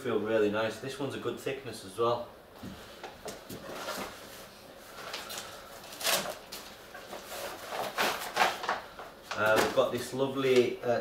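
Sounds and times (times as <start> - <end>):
packaging rustling and crinkling: 3.2 - 10.7.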